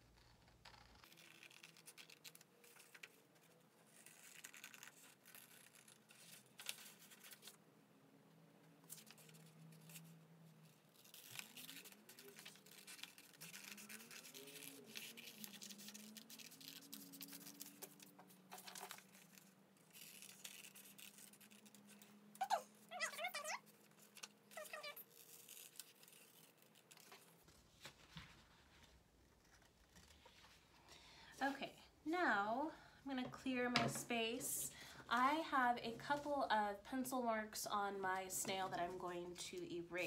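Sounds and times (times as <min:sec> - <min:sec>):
scissors cutting paper: 0:08.9 - 0:27.4.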